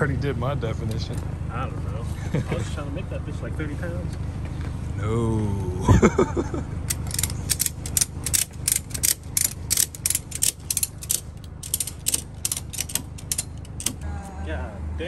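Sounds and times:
ratchet strap clicking: 0:06.9 - 0:14.1.

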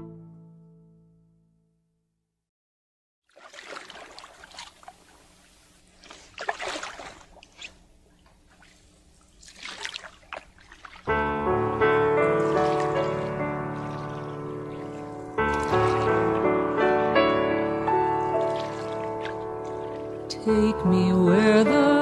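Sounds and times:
water trickling off paddle: 0:03.3 - 0:11.2, 0:12.0 - 0:20.6
paddle splashes: 0:03.3 - 0:20.6.

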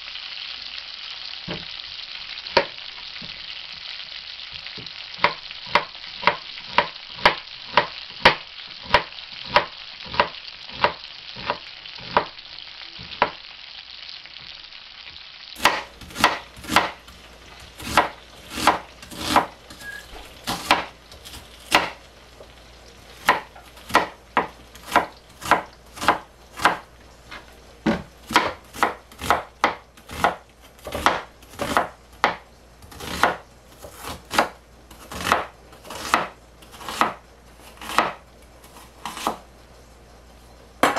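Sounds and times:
knife slicing on cutting board: 0:17.6 - 0:22.0.

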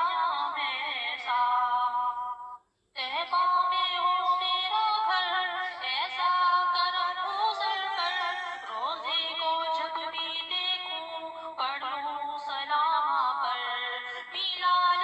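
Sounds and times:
woman singing high notes: 0:06.7 - 0:11.4.

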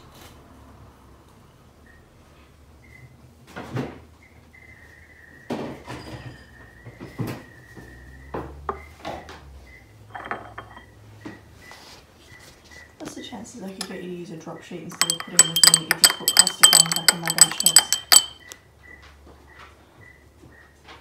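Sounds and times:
metal tools clinking on glass: 0:10.1 - 0:10.9, 0:13.8 - 0:14.0, 0:14.9 - 0:18.6.

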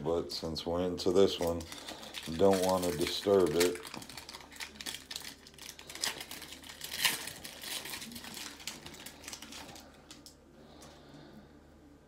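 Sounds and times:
foil wrapper crinkling and tearing: 0:01.2 - 0:10.4.

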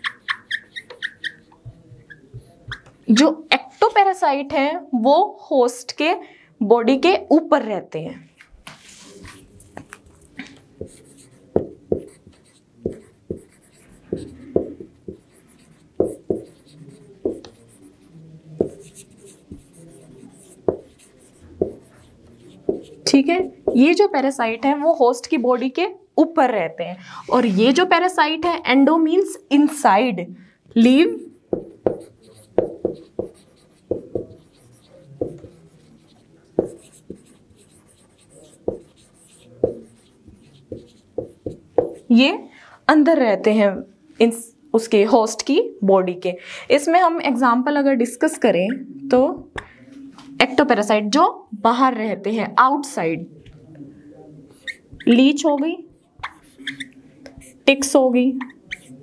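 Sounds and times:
marker writing on whiteboard: 0:00.0 - 0:04.2, 0:08.4 - 0:25.0, 0:31.1 - 0:42.2, 0:54.4 - 0:59.0.

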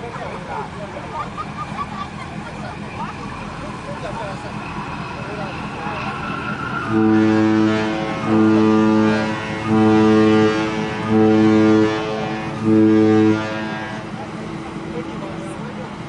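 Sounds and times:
ship's horn blasts: 0:06.8 - 0:15.0.

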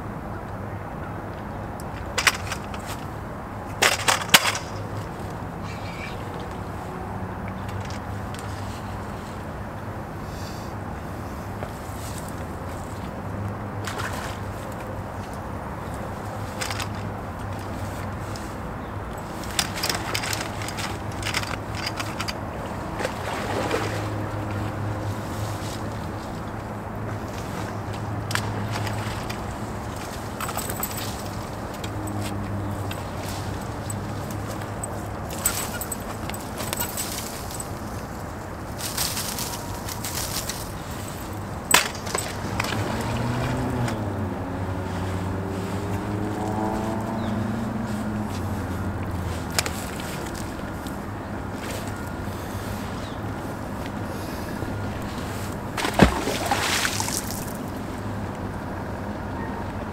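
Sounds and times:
small boat motor humming: 0:12.4 - 0:36.8, 0:42.2 - 0:59.9
fish splashing in water: 0:55.3 - 0:57.8.

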